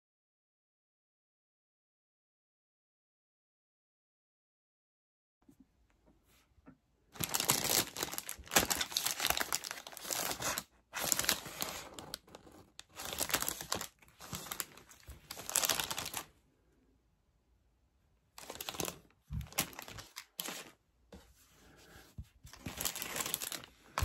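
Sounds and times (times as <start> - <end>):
plastic bag crinkling: 7.2 - 16.3, 18.4 - 20.8, 22.5 - 24.0.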